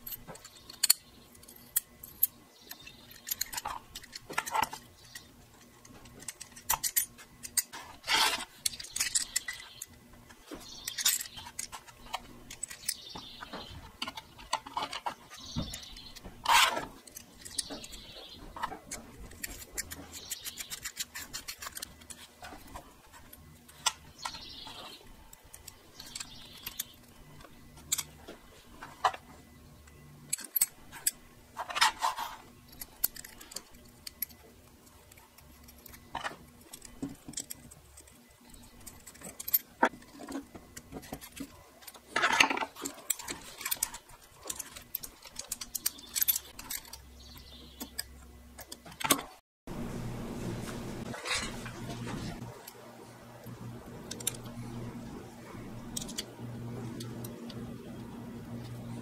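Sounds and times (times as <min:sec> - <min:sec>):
metal-on-metal scraping: 0:00.0 - 0:29.3, 0:30.3 - 0:34.4, 0:51.0 - 0:52.6
small metal parts clicking: 0:00.0 - 0:49.4, 0:52.5 - 0:55.0, 0:55.6 - 0:57.6.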